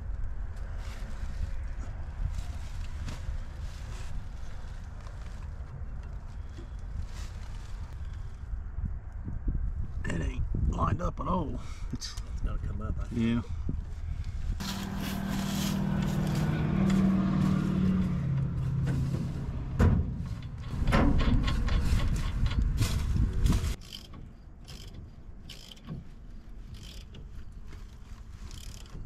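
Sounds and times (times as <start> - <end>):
engine running: 14.6 - 23.8.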